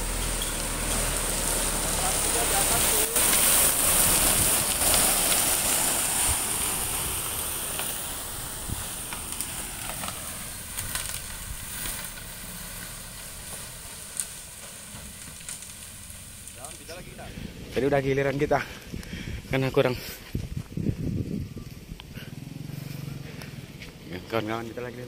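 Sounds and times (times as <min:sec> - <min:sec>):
truck engine running: 0:00.0 - 0:18.9
gravel pouring from truck bed: 0:00.0 - 0:20.2.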